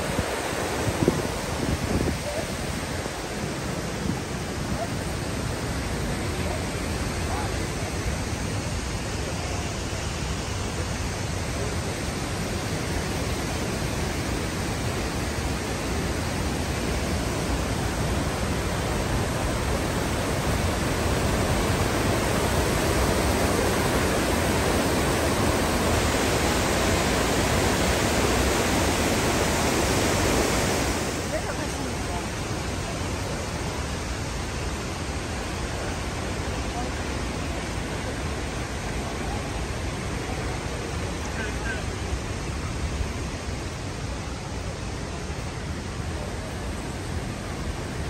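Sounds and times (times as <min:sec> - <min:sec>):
creek rushing over boulders: 0:00.0 - 0:48.0.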